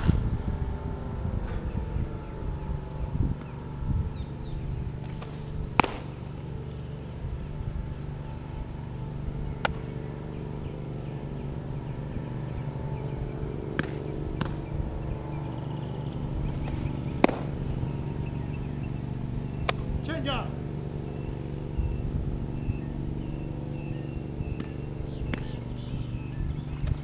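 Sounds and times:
low background rumble: 0.0 - 27.0
baseball popping into leather mitt: 5.0 - 6.2, 9.6 - 9.9, 13.7 - 14.7, 16.5 - 17.7, 19.6 - 19.9, 24.5 - 25.6.

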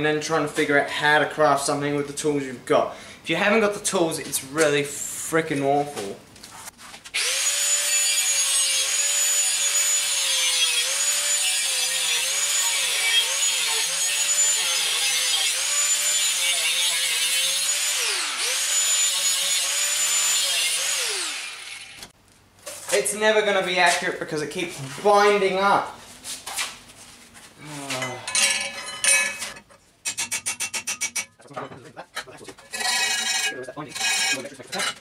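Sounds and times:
angle grinder cutting steel: 7.2 - 22.1, 32.7 - 35.0.

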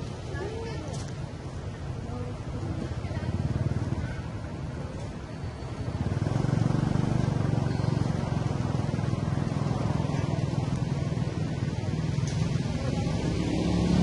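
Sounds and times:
vehicle engine rumble: 0.0 - 14.0.

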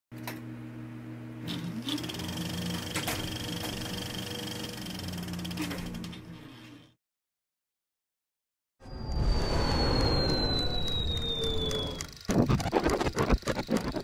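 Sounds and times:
film projector clattering: 1.8 - 6.1
low hum: 8.8 - 13.1
sharp clicks: 9.9 - 14.0.

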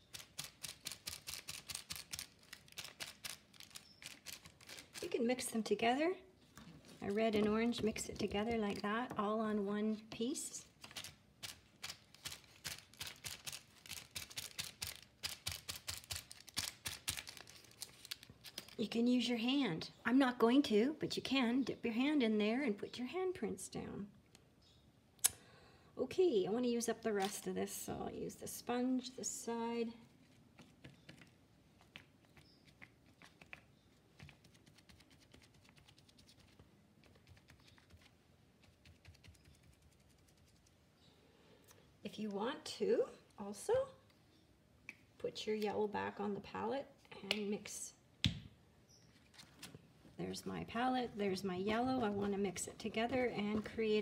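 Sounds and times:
wax paper dabbing on paint: 0.0 - 5.7, 9.9 - 18.8.

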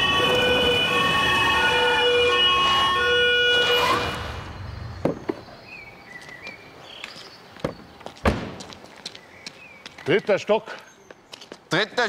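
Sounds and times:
two-tone police siren: 0.0 - 4.5.

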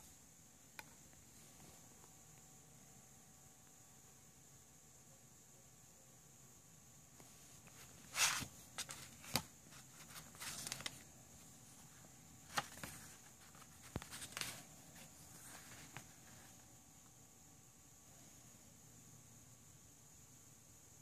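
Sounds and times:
faint high hiss: 0.0 - 21.0
paper rustles and clicks: 7.7 - 11.1, 12.5 - 14.7.

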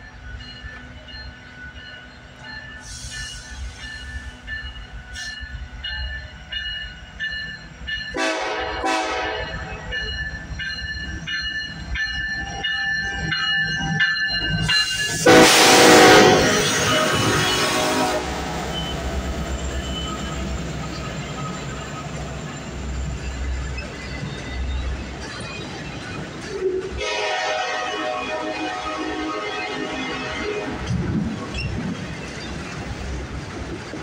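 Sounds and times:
locomotive rumble: 0.0 - 34.0
rush of passing rail cars: 0.0 - 34.0
wheel squeal: 18.7 - 26.8.

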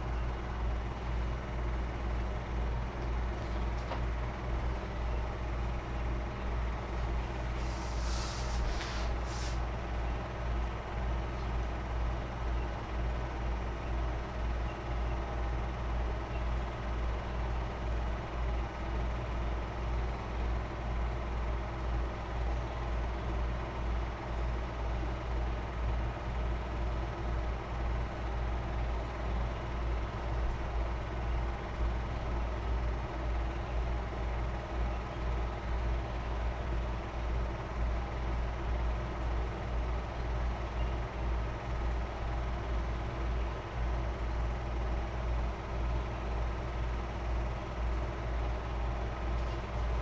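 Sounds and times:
steady low hum: 0.0 - 50.0
high hiss: 7.5 - 9.7.

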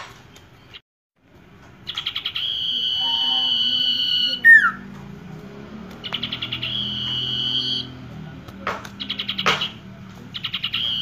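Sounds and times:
bird trilling and whistling: 1.8 - 4.9, 5.9 - 8.1, 8.9 - 11.0
harsh bird notes: 1.8 - 8.2, 8.9 - 11.0.

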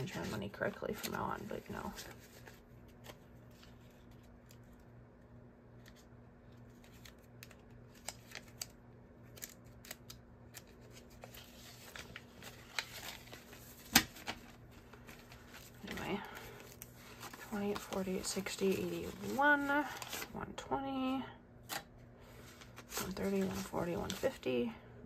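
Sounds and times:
paper bills rustling: 5.8 - 20.4, 22.3 - 24.4.

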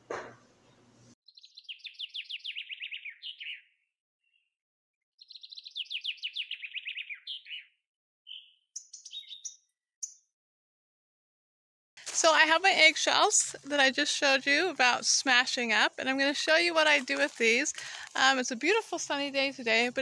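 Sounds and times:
bird chips and calls: 1.3 - 3.8, 5.2 - 10.2
songbird trilling: 1.3 - 3.8, 5.2 - 10.2.

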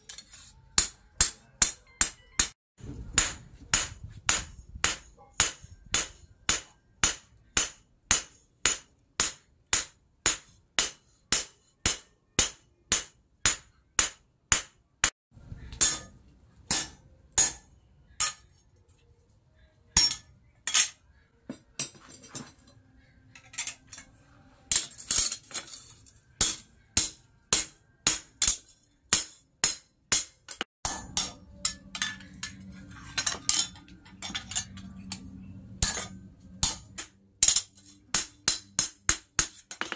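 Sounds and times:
hammer ringing on anvil: 0.8 - 2.6.

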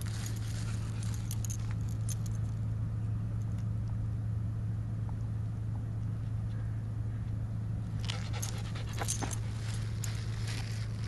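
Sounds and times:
dog collar tags jingling: 0.0 - 2.6, 8.0 - 10.8
steady low drone: 0.0 - 11.0.

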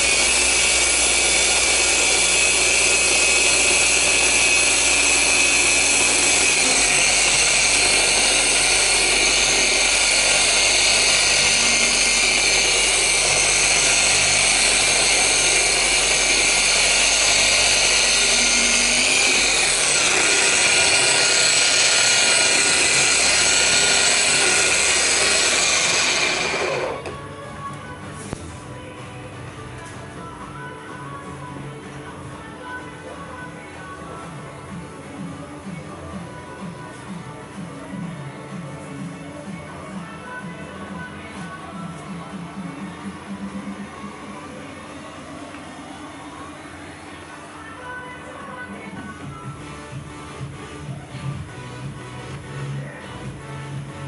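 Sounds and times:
orbital polisher running: 0.0 - 27.1.

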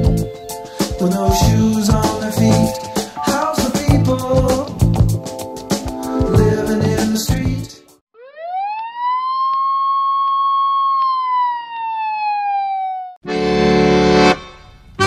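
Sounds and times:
accordion music: 0.0 - 7.1, 13.2 - 14.8
music track: 0.0 - 7.9, 13.3 - 15.0
siren wail: 8.1 - 13.2.

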